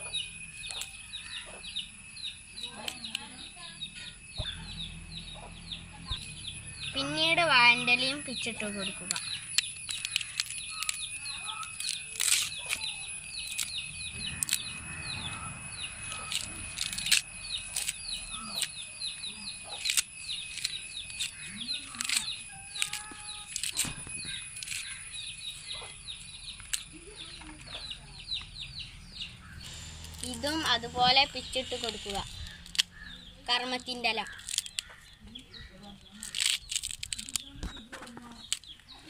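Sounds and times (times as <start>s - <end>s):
rapid high chirps: 0.0s - 26.7s, 28.4s - 35.6s
leaves tearing and rustling: 8.7s - 25.7s, 29.5s - 39.0s.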